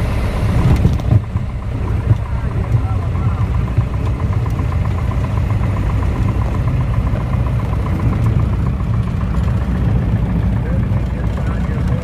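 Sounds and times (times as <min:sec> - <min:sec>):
light aircraft piston engine running: 0:00.0 - 0:12.0.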